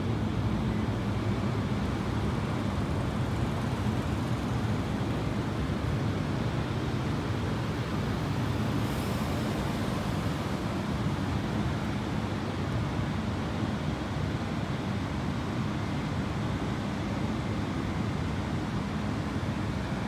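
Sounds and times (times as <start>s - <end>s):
street traffic rumble: 0.0s - 15.7s.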